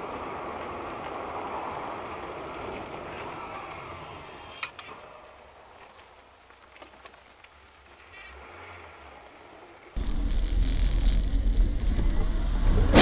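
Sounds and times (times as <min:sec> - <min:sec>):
vehicle road and engine noise: 0:00.0 - 0:13.0.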